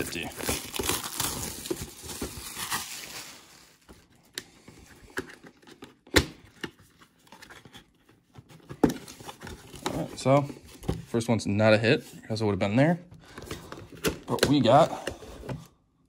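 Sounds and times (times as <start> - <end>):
plastic wrap crinkling and tearing: 0.0 - 4.2.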